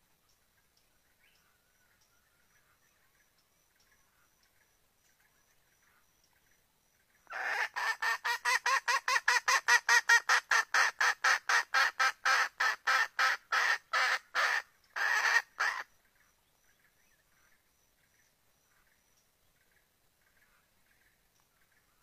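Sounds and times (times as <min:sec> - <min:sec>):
hen cackling: 0:07.3 - 0:15.9.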